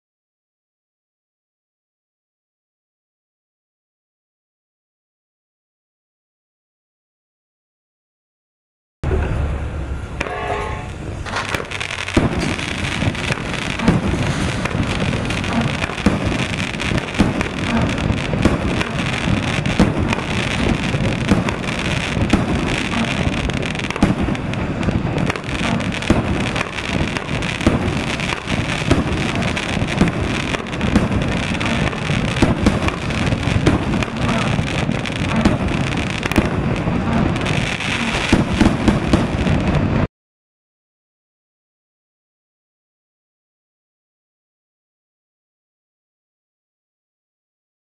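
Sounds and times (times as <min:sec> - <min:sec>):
fireworks crackling and popping: 0:10.2 - 0:40.1.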